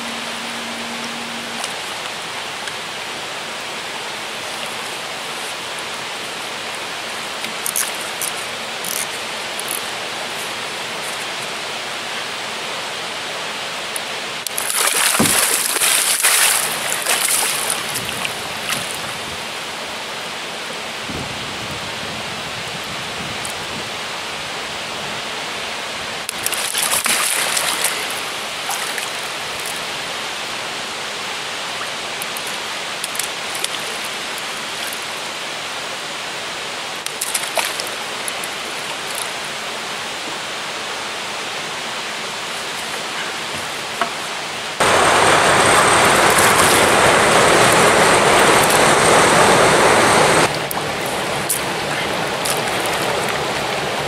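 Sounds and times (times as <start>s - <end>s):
fish splashing at water surface: 14.5s - 19.0s, 26.3s - 29.2s, 37.1s - 39.3s, 46.1s - 47.0s.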